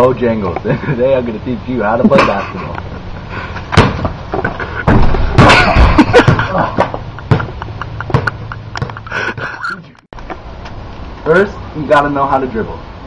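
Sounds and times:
people laughing: 0:02.0 - 0:02.9, 0:04.6 - 0:10.0
knocks and thumps on concrete: 0:03.6 - 0:09.0.

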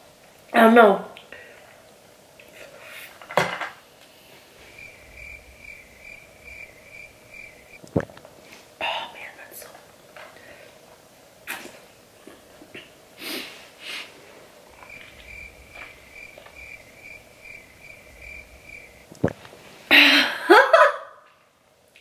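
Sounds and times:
faint high pulsing chirp: 0:04.6 - 0:07.8, 0:14.7 - 0:19.1
woman sniffing: 0:13.2 - 0:14.2.

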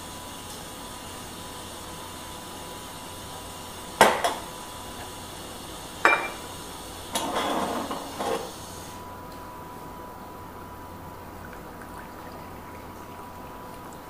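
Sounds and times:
crockery clinking: 0:06.0 - 0:06.5
crockery rattling and scraping: 0:07.2 - 0:08.5.

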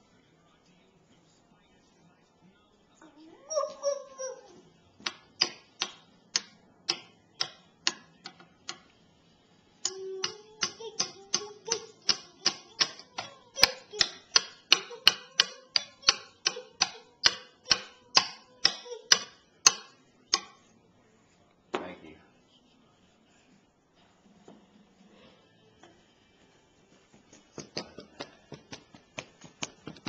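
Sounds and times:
rhythmic sharp clicks: 0:09.8 - 0:20.5.

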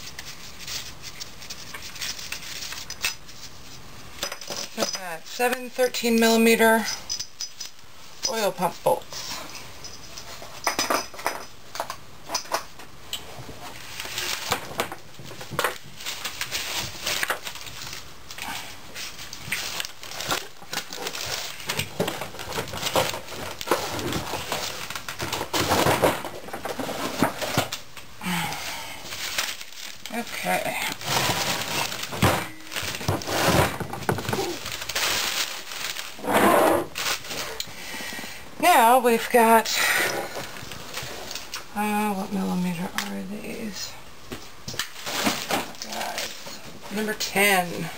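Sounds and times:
newspaper crinkling: 0:00.0 - 0:05.8, 0:13.6 - 0:41.7
metal clinks and knocks: 0:06.8 - 0:08.4, 0:09.2 - 0:12.6.

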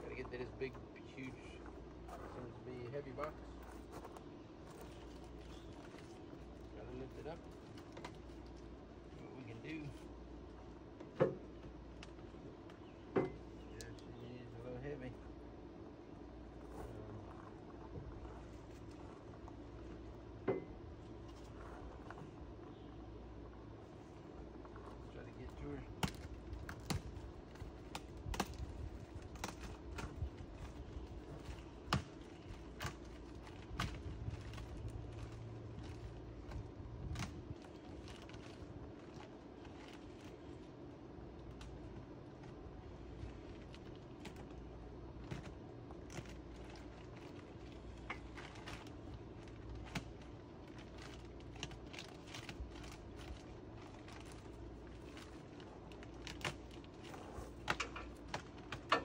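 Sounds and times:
packing rustling: 0:45.2 - 0:59.0.

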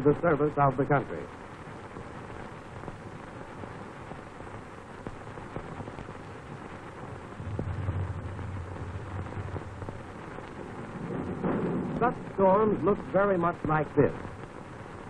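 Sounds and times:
film soundtrack hiss and crackle: 0:00.0 - 0:15.0
thunder rumble: 0:05.4 - 0:15.0.

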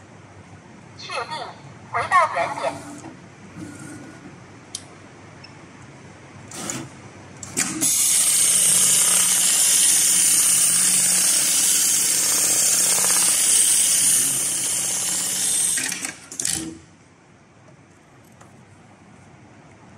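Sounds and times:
sewing machine stitching: 0:06.5 - 0:06.9, 0:07.5 - 0:16.8
sewing machine clacks: 0:12.5 - 0:13.6.

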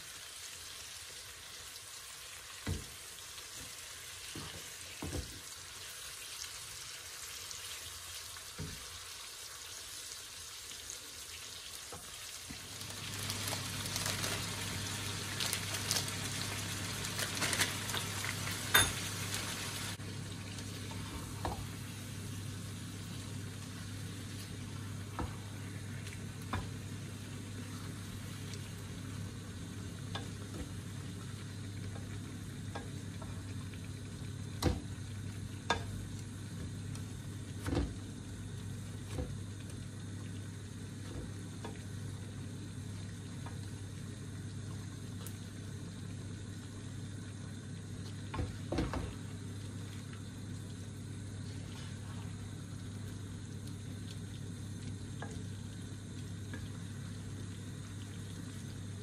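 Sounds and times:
food sizzling in a pan: 0:00.0 - 0:59.0
steady low hum: 0:13.1 - 0:59.0.

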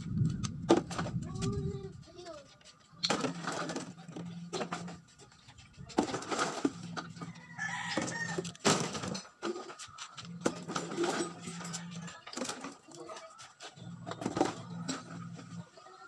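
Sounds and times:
plastic bottles crackling and knocking: 0:02.9 - 0:05.0, 0:05.9 - 0:15.6.

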